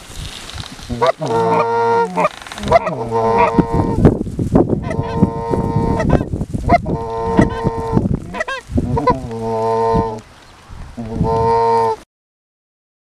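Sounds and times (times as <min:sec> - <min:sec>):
wind thumping on microphone: 0:00.0 - 0:12.0
goose clucking: 0:00.9 - 0:04.0, 0:04.8 - 0:10.2, 0:11.0 - 0:12.0
goose honking: 0:00.9 - 0:04.0, 0:04.8 - 0:10.2, 0:11.0 - 0:12.0.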